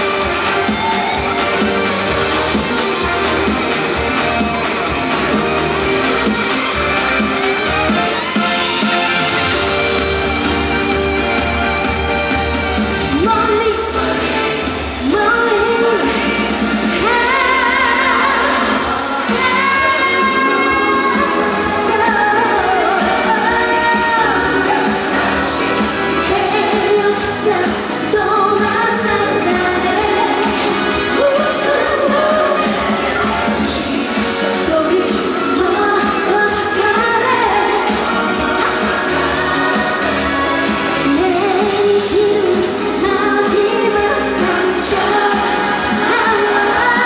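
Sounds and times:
amplified band backing: 0:00.0 - 0:47.0
woman singing into a microphone: 0:13.1 - 0:47.0.

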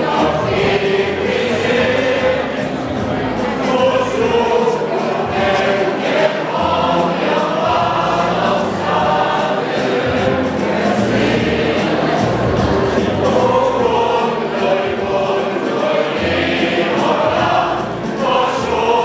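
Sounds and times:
mixed choir singing: 0:00.0 - 0:19.0.

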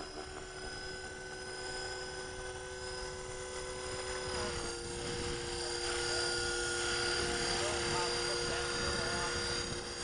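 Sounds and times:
model helicopter motor whining: 0:00.0 - 0:10.0.

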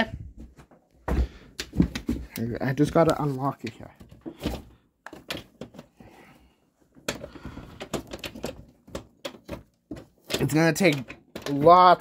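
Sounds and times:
door lock clicking and rattling: 0:07.1 - 0:11.9.

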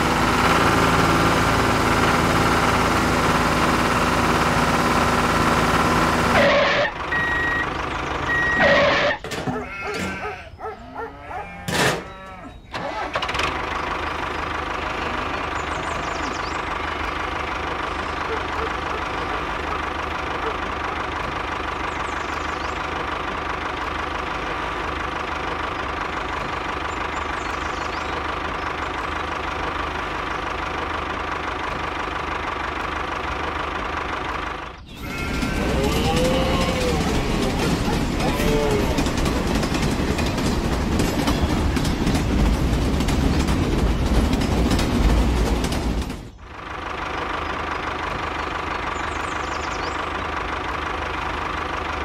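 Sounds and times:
short squeaky glides: 0:34.8 - 0:36.2
toy electric motor whining: 0:34.9 - 0:39.0.

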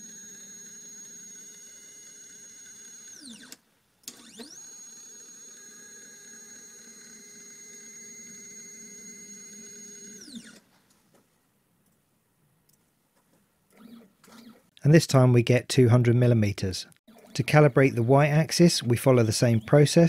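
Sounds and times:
stepper motors whining: 0:00.0 - 0:10.6.

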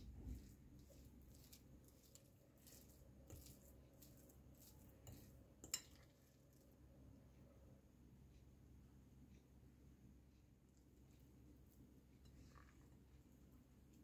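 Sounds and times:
fork scraping glass bowl: 0:00.4 - 0:06.1.

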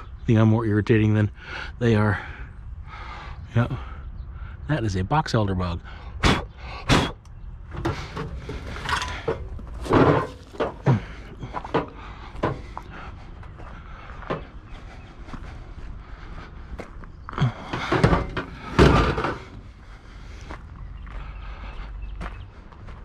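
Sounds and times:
junk items knocking and clunking: 0:07.6 - 0:14.7, 0:17.4 - 0:19.9.

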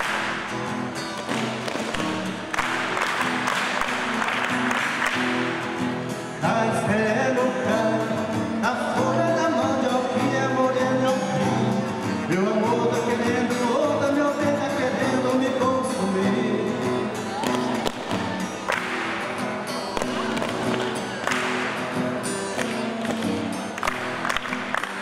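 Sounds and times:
rhythmic hand clapping: 0:00.0 - 0:06.4, 0:17.4 - 0:25.0
foot stamping: 0:01.1 - 0:02.9
person singing: 0:06.4 - 0:18.6.

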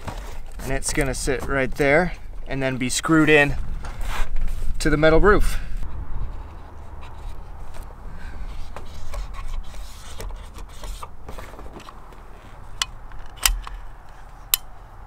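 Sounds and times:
low rumble: 0:05.7 - 0:09.8
caulking gun clicks: 0:12.8 - 0:13.8.

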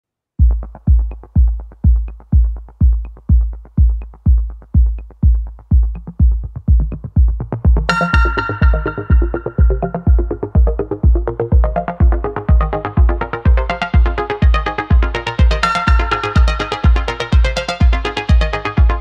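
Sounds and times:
heavy kick drum beat: 0:00.4 - 0:19.0
synthesizer melody: 0:06.0 - 0:19.0.

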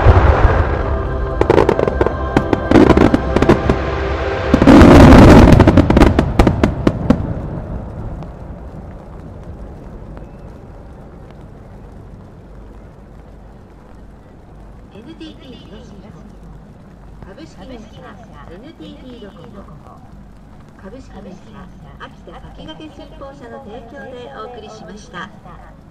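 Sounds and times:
music: 0:00.0 - 0:06.7
fireworks bursting and crackling: 0:00.0 - 0:25.9.

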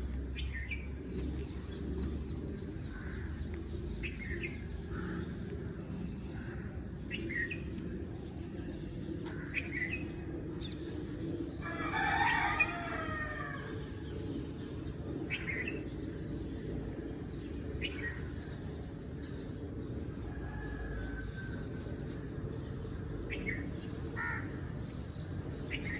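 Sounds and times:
low background rumble: 0:00.0 - 0:25.9
rooster crowing: 0:11.6 - 0:13.8.

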